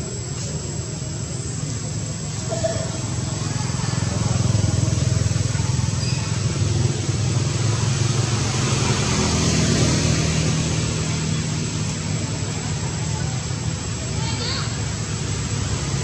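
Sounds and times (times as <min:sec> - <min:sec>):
vehicle engine humming: 0:00.0 - 0:16.0
thin high-pitched tone: 0:02.4 - 0:03.1.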